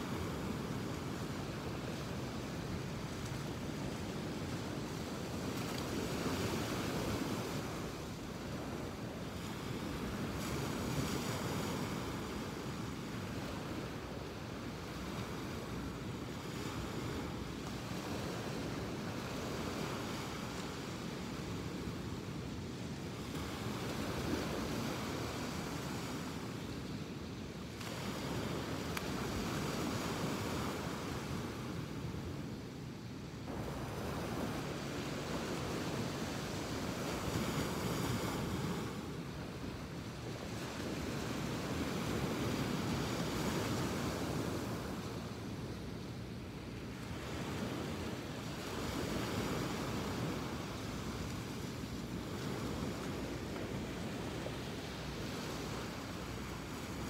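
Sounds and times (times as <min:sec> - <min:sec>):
ocean surf washing ashore: 0:00.0 - 0:57.0
wind buffeting the microphone: 0:33.5 - 0:45.9.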